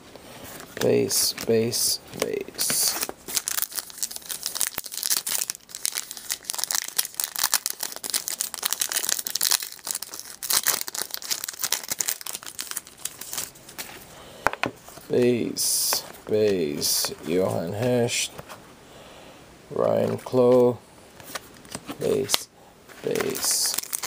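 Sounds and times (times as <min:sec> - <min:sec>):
wrapper crinkling and tearing: 0:02.6 - 0:13.9, 0:23.0 - 0:24.0.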